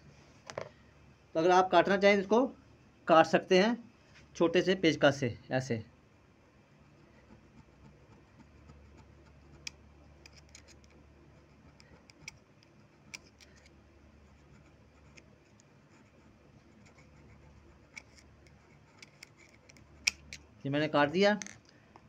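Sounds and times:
low steady hum: 0.0 - 22.0
screwdriver scraping cardboard: 6.9 - 20.4.

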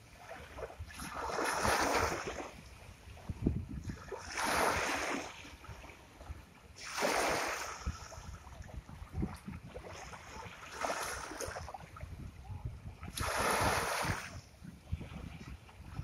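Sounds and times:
low wind rumble on microphone: 0.0 - 16.0
sea waves washing onto shore: 6.8 - 12.0, 12.9 - 16.0.

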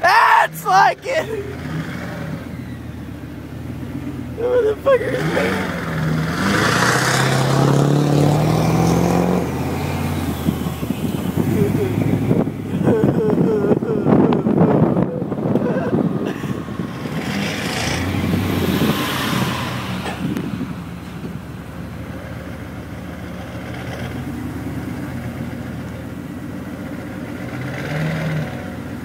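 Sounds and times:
vehicle engine droning: 1.0 - 29.0.

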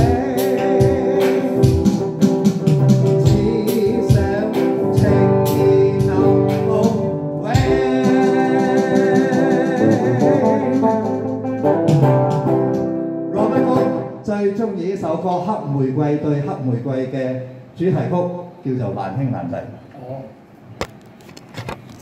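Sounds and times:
man singing into a microphone: 0.0 - 2.2, 3.1 - 11.2, 13.3 - 14.6
drum kit: 0.0 - 14.2
electric guitar: 0.0 - 14.3.

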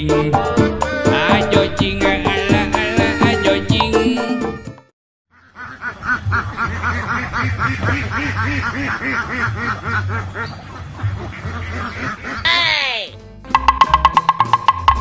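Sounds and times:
ducks quacking: 5.3 - 13.2.

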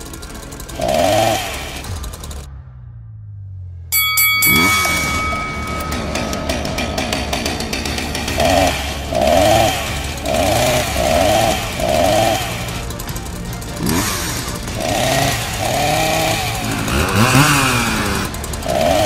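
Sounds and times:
revving chainsaw buzz effect: 0.0 - 2.5, 4.5 - 19.0.

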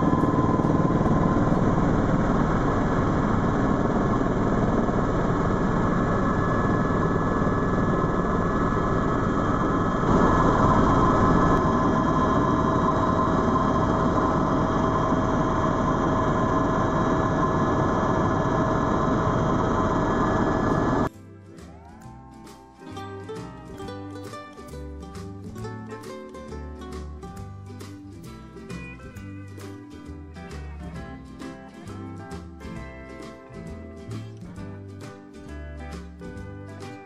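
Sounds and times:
helicopter rotor and engine noise: 0.0 - 21.1
high turbine whine: 0.0 - 21.1.

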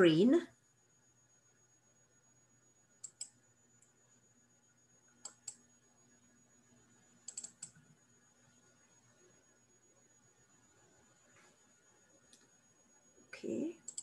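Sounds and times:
computer mouse clicks: 3.0 - 3.9, 5.2 - 5.6, 7.2 - 7.9, 12.3 - 12.5.

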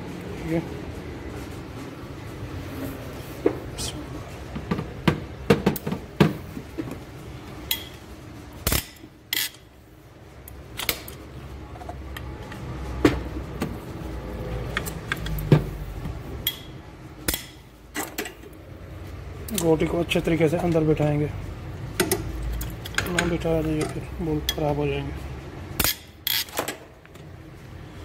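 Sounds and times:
wrench clinking on engine bolts: 7.7 - 8.0, 8.6 - 9.6, 16.4 - 18.4, 25.8 - 26.8.

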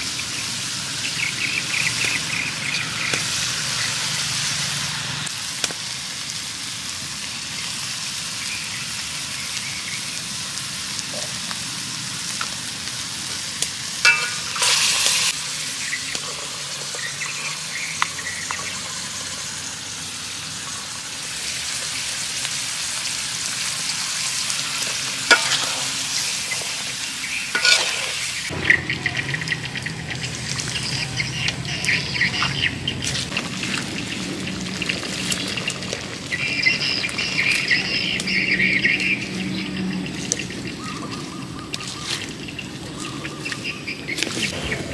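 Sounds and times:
food sizzling in a wok: 0.0 - 44.5
metal spatula scraping a pan: 14.1 - 15.3, 25.2 - 26.8, 27.5 - 28.4.

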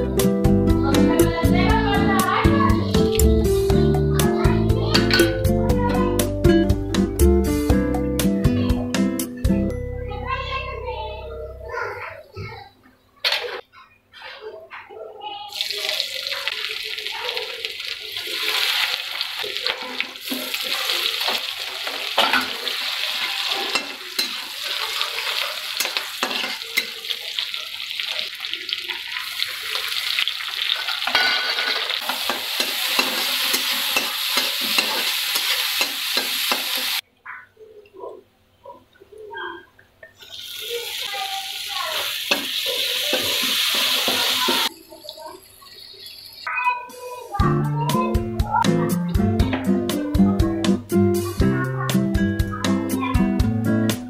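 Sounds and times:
spices sizzling in hot oil: 15.5 - 37.0, 40.2 - 46.5.

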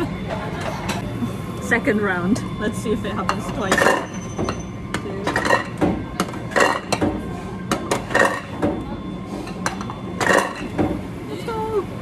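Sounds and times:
ceramic plates clinking: 3.3 - 7.0, 7.7 - 8.6, 9.6 - 10.7.

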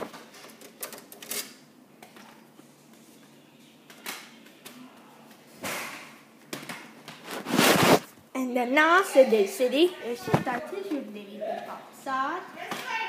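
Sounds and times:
short rustle: 7.2 - 8.1.

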